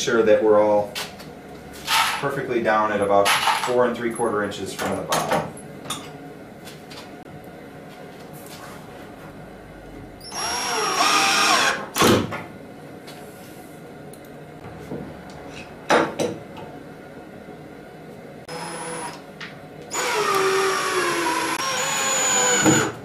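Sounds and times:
cordless drill driving screws: 10.3 - 11.8, 18.5 - 19.2, 19.9 - 23.0.

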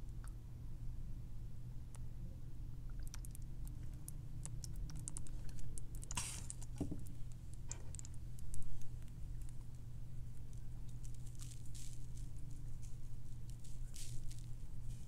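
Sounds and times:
paste pouring with small clicks: 2.9 - 9.6.

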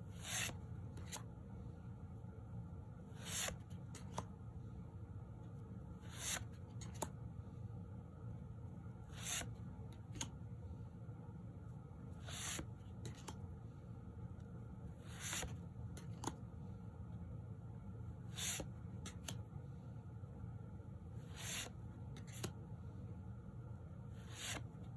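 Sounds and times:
cards swishing against cards: 0.1 - 1.3, 3.1 - 4.4, 6.0 - 7.2, 9.1 - 10.4, 12.2 - 13.5, 15.0 - 16.4, 18.2 - 19.5, 21.2 - 22.6, 24.2 - 24.9.

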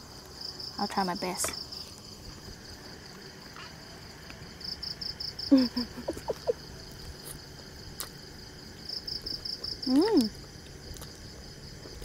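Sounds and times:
crickets chirping: 0.0 - 12.0
woman humming while chewing: 5.5 - 6.6.

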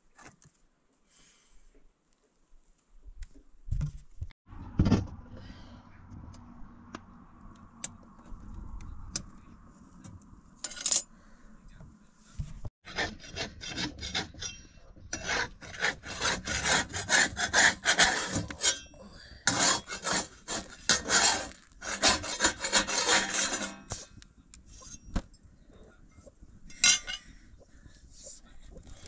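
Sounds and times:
metal spatula scraping griddle: 19.5 - 24.0.

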